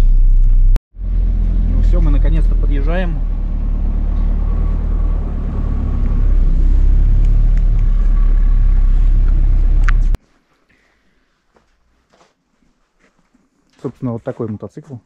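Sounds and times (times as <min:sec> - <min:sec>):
vehicle engine and road rumble: 0:00.0 - 0:10.2.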